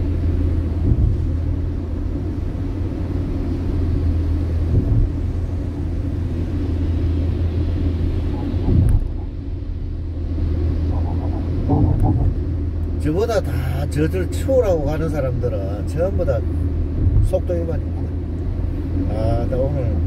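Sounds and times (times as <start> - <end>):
car tyres and engine rumbling: 0.0 - 20.0
car bump: 0.8 - 1.4, 4.7 - 5.2, 8.4 - 9.2, 11.0 - 12.5.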